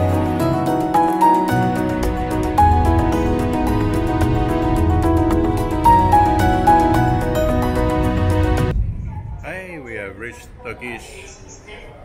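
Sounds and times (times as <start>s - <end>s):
music with held notes and beat: 0.0s - 8.7s.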